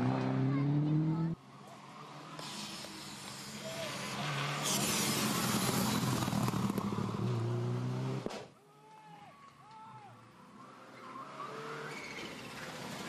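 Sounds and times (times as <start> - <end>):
rally car engine revving: 0.0 - 1.4, 2.9 - 8.3.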